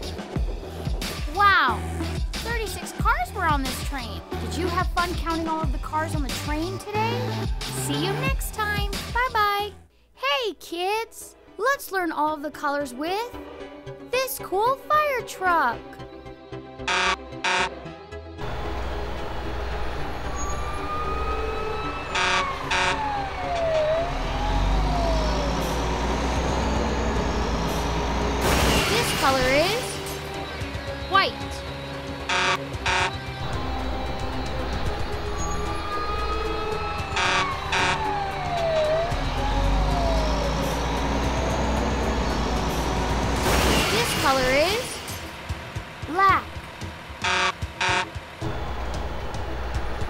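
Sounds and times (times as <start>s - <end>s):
fire engine horn blasts: 16.8s - 17.8s, 21.8s - 24.3s, 32.2s - 38.4s, 47.2s - 48.8s
short horn blasts: 16.9s - 17.7s, 32.2s - 33.3s, 47.2s - 48.2s
siren sliding in pitch: 16.9s - 17.7s, 18.4s - 30.0s, 32.3s - 43.9s, 47.2s - 49.9s
low engine rumble: 18.4s - 28.5s, 31.7s - 43.6s, 44.6s - 50.0s.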